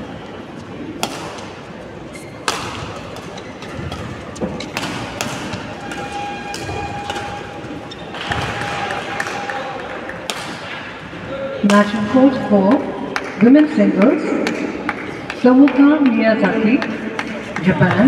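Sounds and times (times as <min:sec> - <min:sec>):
rackets striking shuttlecock: 0:00.9 - 0:09.6, 0:10.2 - 0:11.0.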